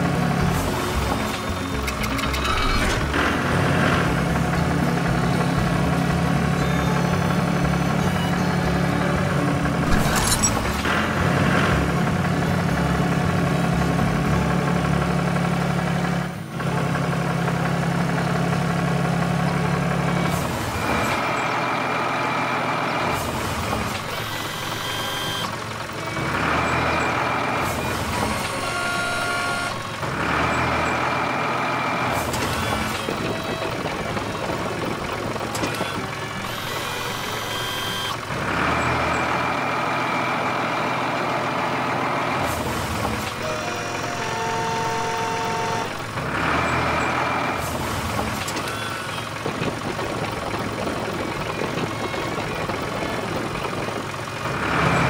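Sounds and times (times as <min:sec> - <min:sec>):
cartoon tractor engine hum: 0:00.0 - 0:55.0
cartoon forklift tones: 0:00.2 - 0:13.4, 0:23.8 - 0:39.5, 0:43.2 - 0:47.3.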